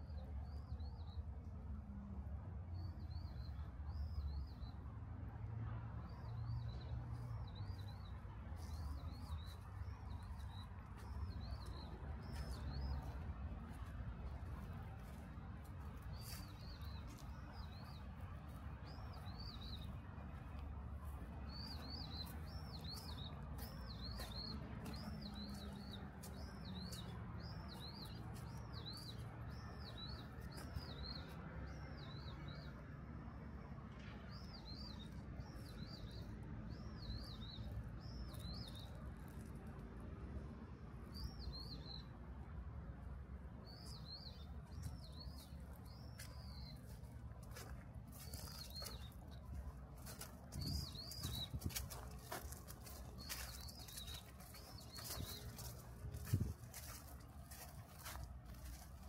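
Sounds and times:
small songbird chirping: 15.0 - 20.4, 21.4 - 32.8, 34.3 - 39.5, 43.6 - 59.0.

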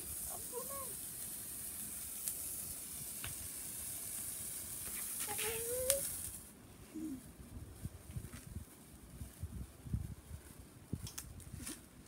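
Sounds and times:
spray firework hissing: 0.0 - 7.2.

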